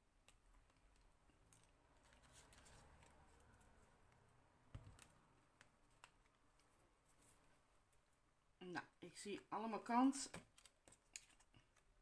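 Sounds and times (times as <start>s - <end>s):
paper clicks and rustles: 0.3s - 3.7s, 10.4s - 11.9s.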